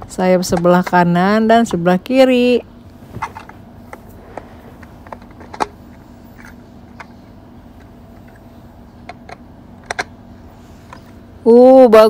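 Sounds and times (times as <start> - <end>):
plastic toy parts clicking: 9.1 - 10.1.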